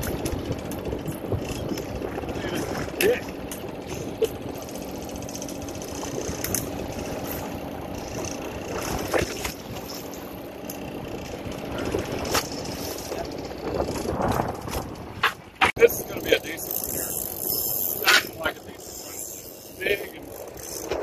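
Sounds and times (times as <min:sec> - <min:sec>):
boat engine idling: 0:00.0 - 0:21.0.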